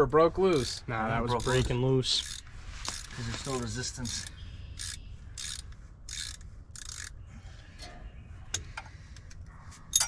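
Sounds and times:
socket ratchet clicking: 4.0 - 7.2.

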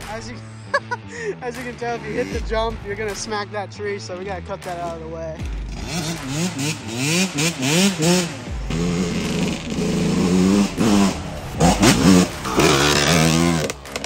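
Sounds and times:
dirt bike engine revving: 5.5 - 14.0.

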